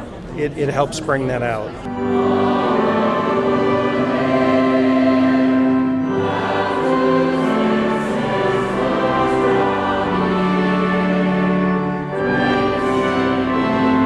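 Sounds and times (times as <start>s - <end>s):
instrumental accompaniment: 0.7s - 14.0s
choir singing a hymn: 1.8s - 14.0s.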